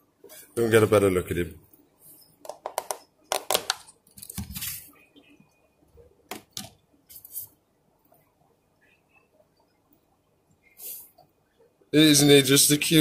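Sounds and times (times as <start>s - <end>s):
plastic tubs clicking and knocking: 2.4s - 4.5s, 6.3s - 6.8s.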